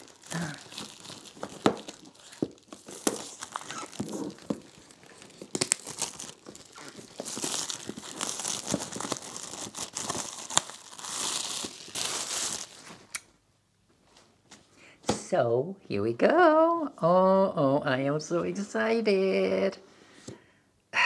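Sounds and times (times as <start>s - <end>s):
plastic wrap crinkling: 0.0s - 13.2s.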